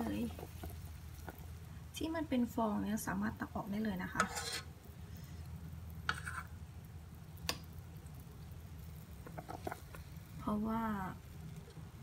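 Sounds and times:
metal spoon scraping pot: 4.1s - 4.7s, 6.1s - 6.5s.

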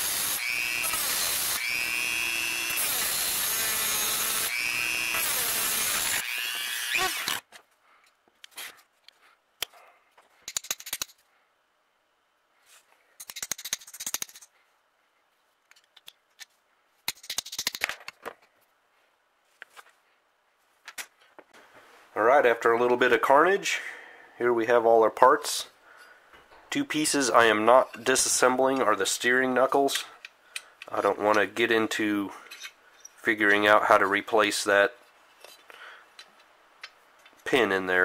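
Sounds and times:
rotary tool cutting: 0.0s - 7.4s.

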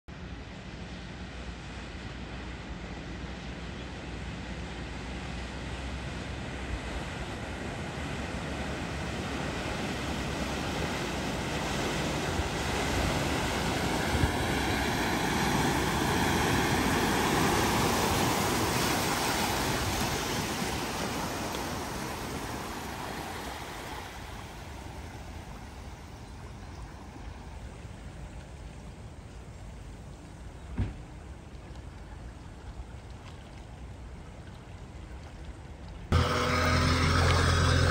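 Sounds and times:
water spray rushing: 4.4s - 26.0s
vehicle engine: 36.1s - 37.9s.

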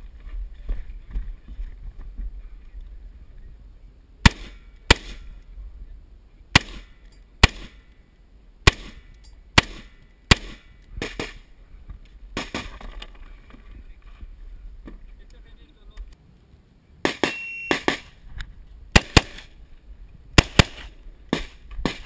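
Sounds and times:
rifle shots: 4.2s - 5.3s, 6.5s - 7.8s, 8.6s - 9.0s, 9.6s - 11.4s, 17.0s - 18.2s, 18.9s - 19.5s, 20.4s - 22.0s.

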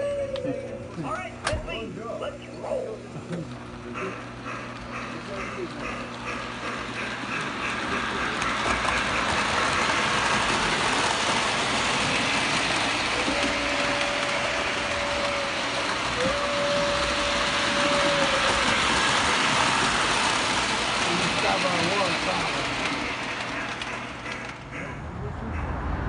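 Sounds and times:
toy train rolling on metal track: 4.0s - 24.7s
long steady tones: 10.2s - 23.1s.

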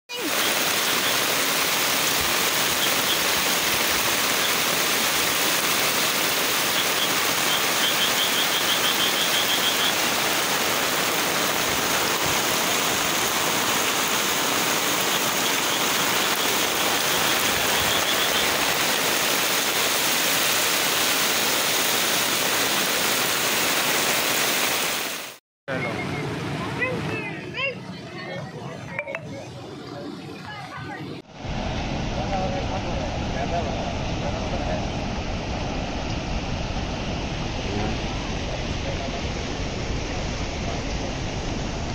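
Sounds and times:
floodwater rushing: 0.1s - 25.4s
heavy rain: 0.1s - 25.4s.

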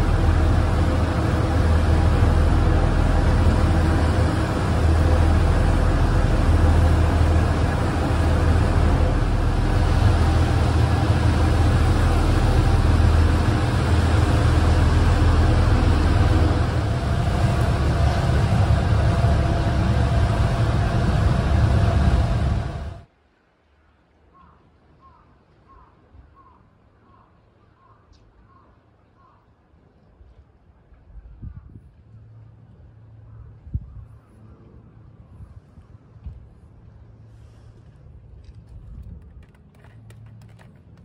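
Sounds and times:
ferry engine humming: 0.0s - 23.1s, 31.9s - 41.0s
water rushing: 0.0s - 23.1s
wind: 0.0s - 41.0s.

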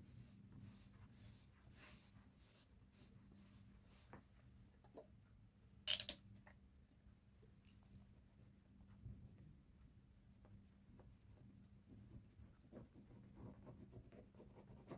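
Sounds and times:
cloth rubbing on leather: 0.0s - 4.4s.

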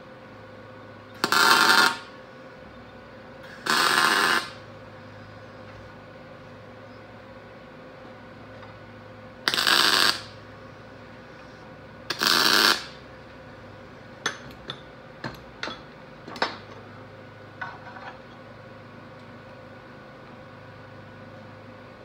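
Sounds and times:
welding tack bursts: 1.2s - 2.1s, 3.5s - 4.6s, 9.5s - 10.4s, 12.1s - 13.0s.

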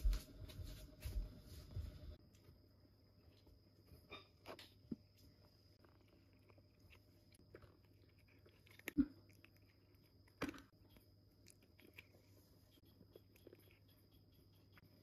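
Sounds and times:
cat crunching dry treats: 5.8s - 14.7s.

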